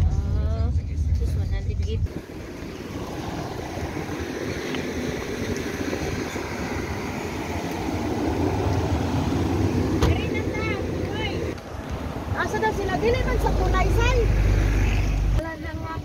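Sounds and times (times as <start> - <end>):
road traffic: 0.0 - 16.0
wind on microphone: 0.0 - 16.0.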